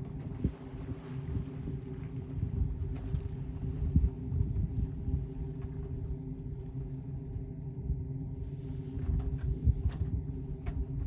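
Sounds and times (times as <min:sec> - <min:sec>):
low steady hum: 0:00.0 - 0:11.0
wind buffeting microphone: 0:00.0 - 0:11.0.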